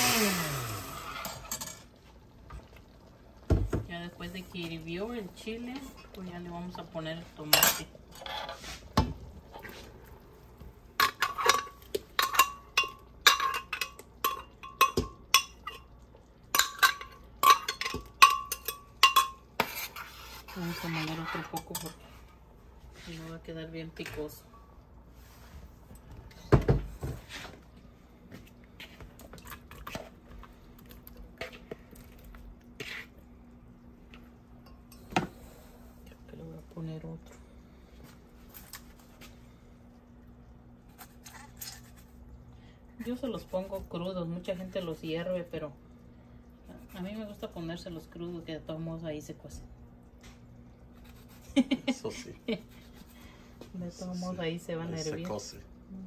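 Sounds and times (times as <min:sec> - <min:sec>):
faint steady hum: 0:00.0 - 0:56.0
spoon scraping pot: 0:07.4 - 0:09.8, 0:16.6 - 0:22.2, 0:32.8 - 0:33.2
metal spoon clinking on pot: 0:11.0 - 0:15.9, 0:16.5 - 0:19.4.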